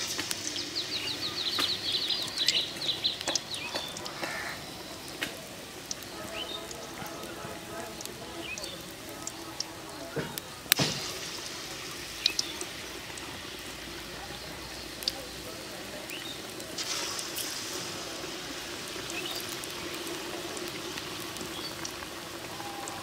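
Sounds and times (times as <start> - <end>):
battered slices sizzling in hot oil: 0.0 - 23.0
sharp oil pops: 10.2 - 11.3.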